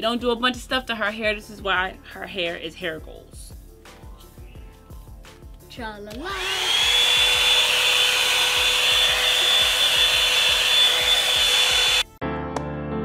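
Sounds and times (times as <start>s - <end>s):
hair dryer whining: 6.1s - 12.1s.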